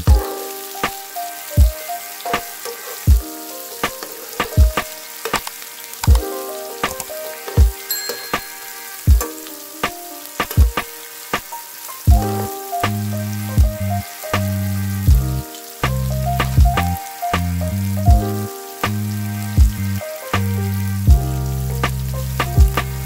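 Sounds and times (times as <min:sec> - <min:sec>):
sizzling vinyl crackle: 0:00.0 - 0:23.0
bass line: 0:12.1 - 0:23.0
soft kick drum: 0:16.6 - 0:16.8.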